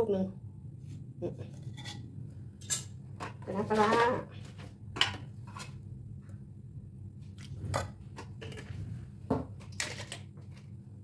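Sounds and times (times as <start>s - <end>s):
steady low hum: 4.4s - 9.7s.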